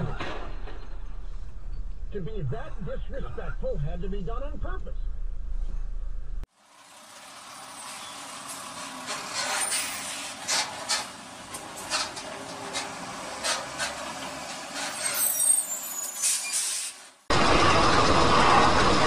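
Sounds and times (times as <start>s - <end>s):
rushing road noise: 6.5s - 19.0s
high squeal: 9.1s - 10.7s, 14.7s - 17.0s.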